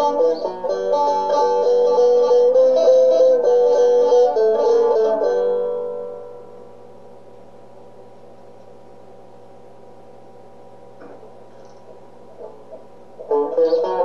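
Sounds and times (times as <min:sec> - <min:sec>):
plucked banjo notes: 0:00.0 - 0:06.4, 0:12.4 - 0:14.0.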